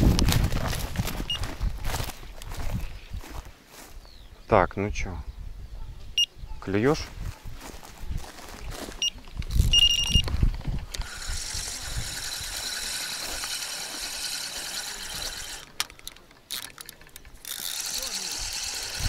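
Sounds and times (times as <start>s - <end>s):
bite alarm beeping: 9.0s - 10.3s
fishing reel ratchet clicking: 10.9s - 19.0s.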